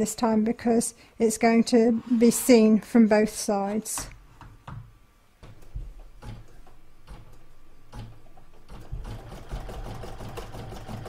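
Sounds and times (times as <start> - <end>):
embroidery machine stitching: 7.9 - 11.0.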